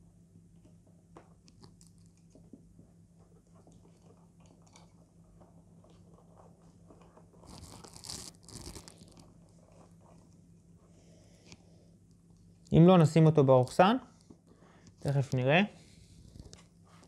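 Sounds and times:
faint low hum: 0.0 - 17.0
crinkling rustle: 3.2 - 10.6
cord handling clicks and rubbing: 7.0 - 9.9.

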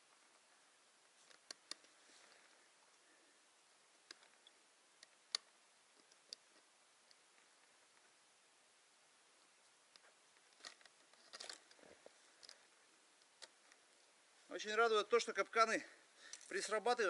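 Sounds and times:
metal trap and chain clicking: 10.6 - 11.8.

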